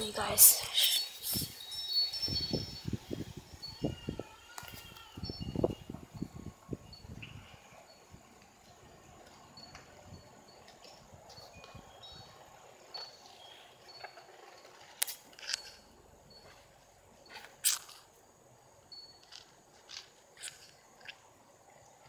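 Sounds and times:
faint high chirps: 0:00.0 - 0:14.9
grass rustling against phone: 0:19.2 - 0:21.3.

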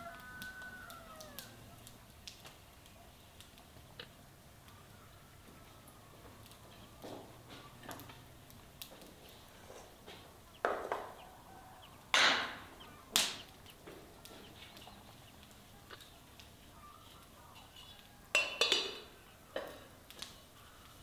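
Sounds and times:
ceramic plates clinking: 0:17.6 - 0:19.1.

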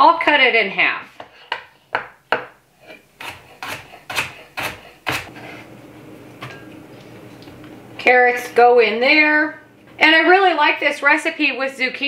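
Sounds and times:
knife chopping on wooden board: 0:01.2 - 0:05.3.

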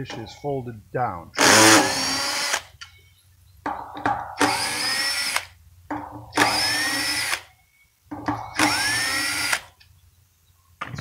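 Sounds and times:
cordless drill motor whine: 0:01.4 - 0:02.6, 0:04.4 - 0:05.5, 0:06.4 - 0:07.5, 0:08.5 - 0:09.7
drill trigger blips: 0:06.4 - 0:07.5, 0:08.4 - 0:09.7.

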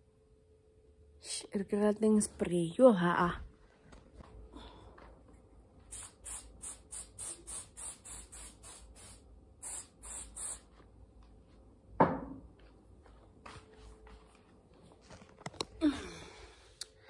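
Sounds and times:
aerosol spray can hissing: 0:05.9 - 0:10.7.

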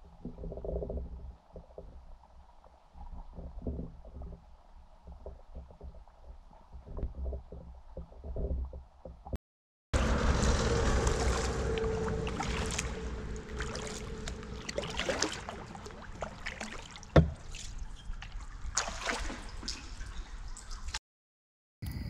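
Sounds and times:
paddle splashes: 0:10.0 - 0:21.0
water dripping from paddle blades: 0:10.5 - 0:21.0.

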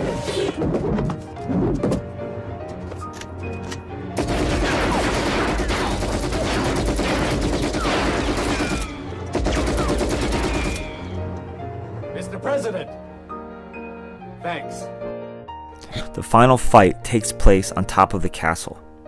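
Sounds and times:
film music score: 0:00.0 - 0:19.0
automatic gunfire: 0:04.2 - 0:10.9
bullets ricocheting off metal: 0:04.3 - 0:11.0.

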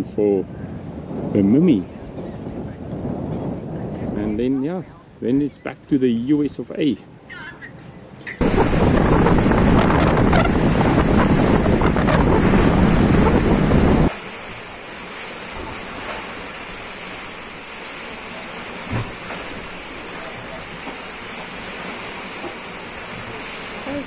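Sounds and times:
wind buffeting microphone: 0:00.0 - 0:05.2, 0:08.0 - 0:14.8
sea water rushing: 0:08.4 - 0:24.0
soft thump: 0:18.9 - 0:19.1.

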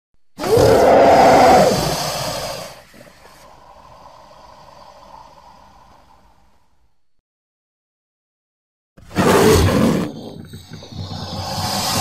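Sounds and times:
creature call: 0:00.4 - 0:02.6.

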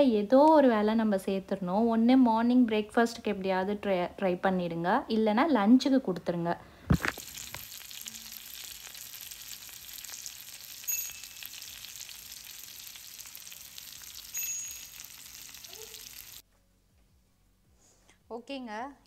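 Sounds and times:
fish sizzling in hot oil: 0:06.9 - 0:16.4.

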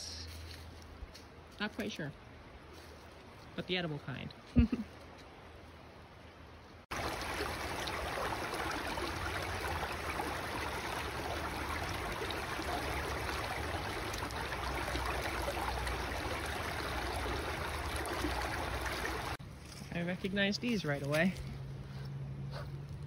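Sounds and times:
stream babbling over stones: 0:06.9 - 0:19.4.

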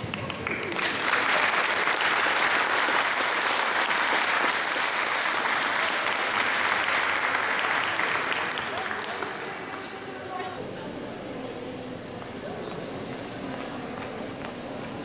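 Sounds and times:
audience clapping: 0:00.0 - 0:09.8.

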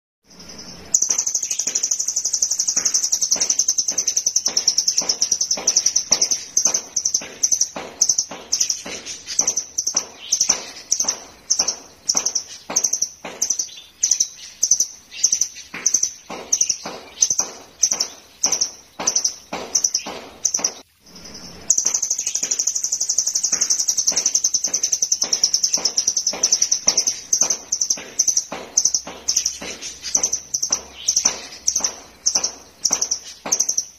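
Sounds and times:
bird singing fast high trill: 0:00.2 - 0:33.9.

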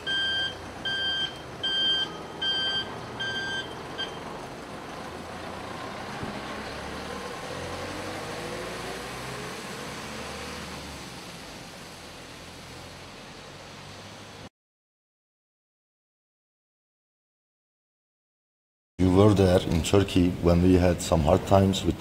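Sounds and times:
electronic warning beeps: 0:00.0 - 0:04.3
minibus driving past: 0:00.0 - 0:14.5
road noise: 0:00.0 - 0:14.5, 0:19.0 - 0:22.0.

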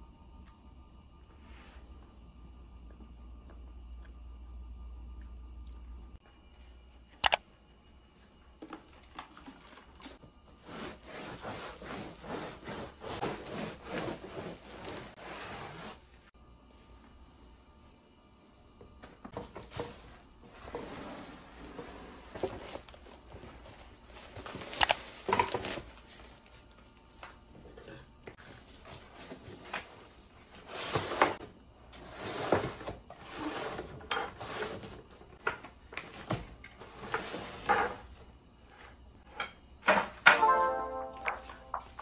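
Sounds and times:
music: 0:40.4 - 0:42.0.

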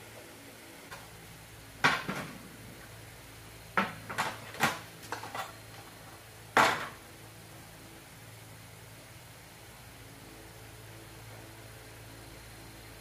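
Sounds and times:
kitchenware knocking and clattering: 0:03.8 - 0:05.5, 0:06.6 - 0:07.0.

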